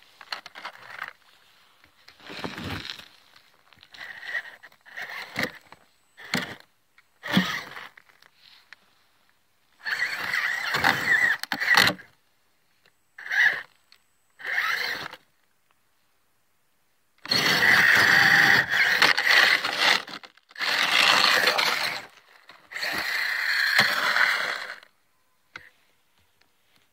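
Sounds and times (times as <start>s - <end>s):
electric motor and gears whining: 3.9s - 6.6s, 7.2s - 8.0s, 9.8s - 12.1s, 13.2s - 13.7s, 14.4s - 15.2s, 17.2s - 24.9s.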